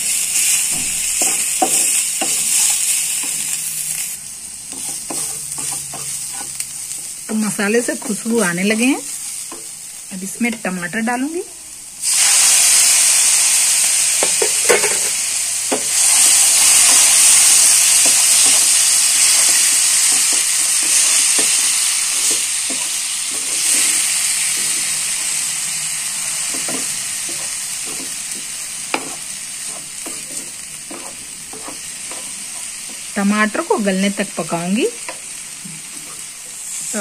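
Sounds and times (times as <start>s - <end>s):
tomatoes sizzling in hot oil: 0.0s - 37.0s
spatula scraping pan: 0.6s - 4.1s, 4.7s - 9.7s, 17.9s - 25.4s, 26.4s - 33.7s, 35.0s - 37.0s.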